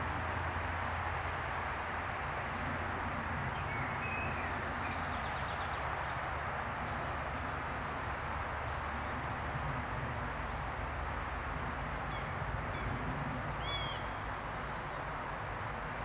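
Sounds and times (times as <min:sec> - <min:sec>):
birds chirping: 0:12.0 - 0:13.0, 0:13.6 - 0:15.1.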